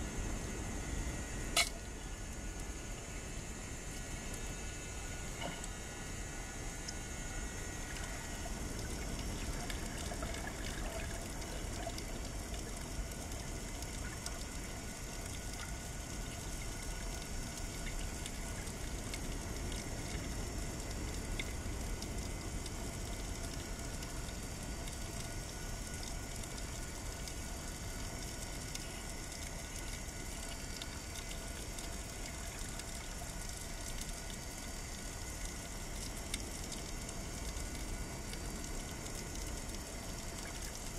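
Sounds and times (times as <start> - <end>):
faint scattered crackles: 0.8 - 40.9.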